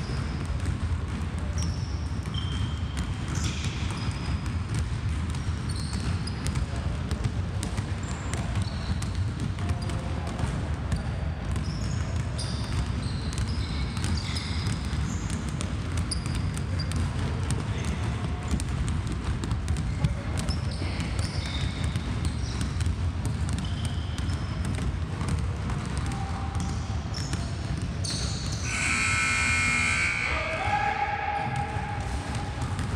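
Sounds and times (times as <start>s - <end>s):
basketballs bouncing on wooden floor: 0.0s - 30.0s, 30.8s - 32.9s
sneaker squeaks: 0.0s - 32.9s
voices echoing: 25.8s - 32.9s.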